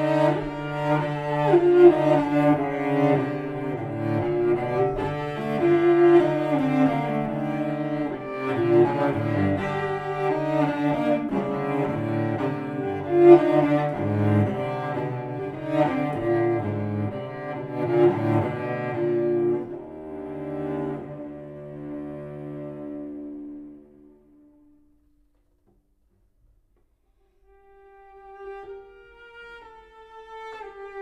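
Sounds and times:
bowed cello lament: 0:00.0 - 0:25.0, 0:27.5 - 0:31.0.

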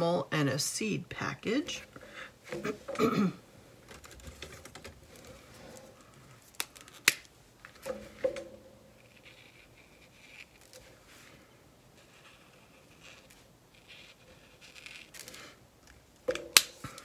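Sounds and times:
marker scratching on paper: 0:12.0 - 0:15.1.

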